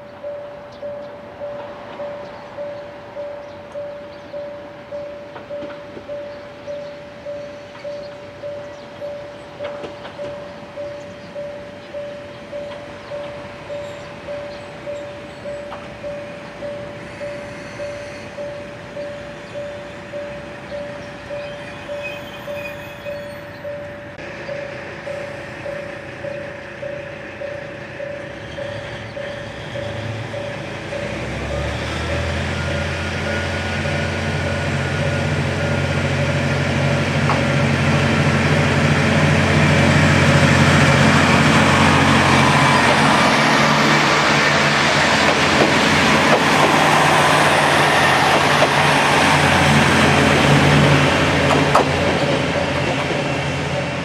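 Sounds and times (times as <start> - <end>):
pulsing ringing tone: 0.0 - 36.8
diesel train engine: 0.0 - 54.0.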